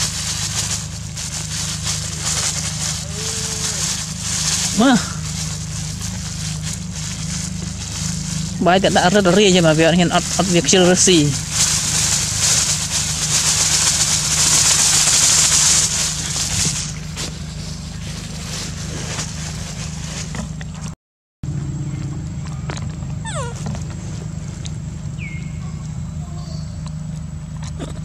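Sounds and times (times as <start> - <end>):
plastic bag crinkling: 0.0 - 20.4.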